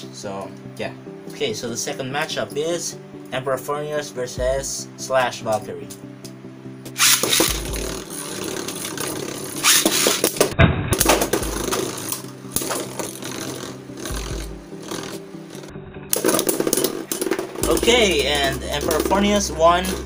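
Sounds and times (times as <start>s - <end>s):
spinning tops clashing: 7.0s - 10.4s
spinning tops whirring and rattling: 7.0s - 10.4s, 11.3s - 20.0s.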